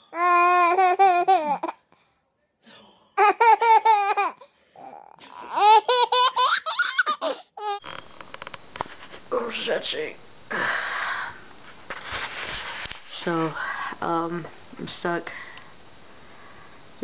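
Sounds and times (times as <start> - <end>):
baby giggling: 0.1 - 1.8, 3.2 - 7.8.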